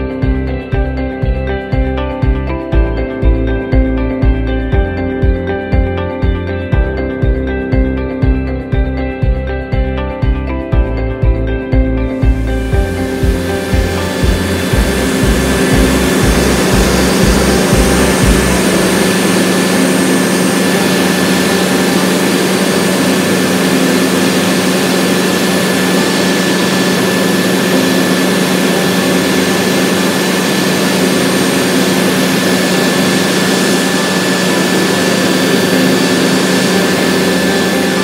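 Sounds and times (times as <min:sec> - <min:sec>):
helicopter cabin drone: 0:00.0 - 0:38.0
thin high whine: 0:12.0 - 0:38.0.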